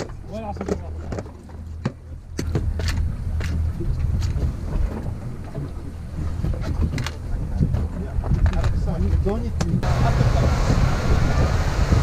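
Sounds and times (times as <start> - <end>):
boat engine droning: 9.1 - 12.0.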